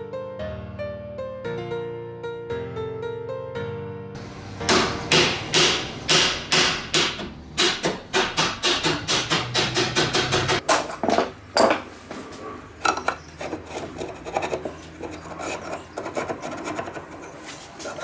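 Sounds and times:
metal scraping and rubbing: 12.1 - 18.0.

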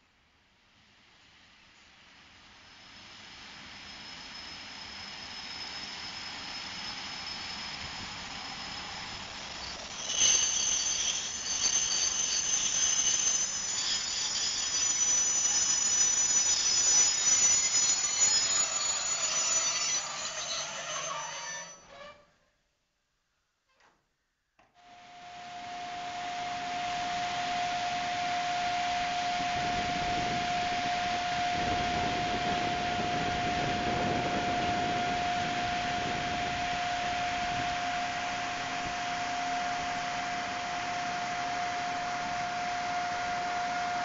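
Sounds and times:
electric locomotive high whine: 0.7 - 22.3, 24.8 - 44.0
train wheels squealing: 2.5 - 22.4, 25.0 - 44.0
freight train rolling past: 2.7 - 22.2, 25.5 - 44.0
wheels rumbling on rails: 28.8 - 41.3.

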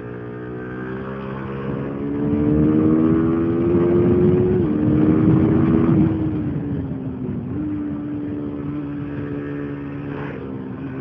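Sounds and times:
motorcycle engine accelerating: 0.0 - 11.0.

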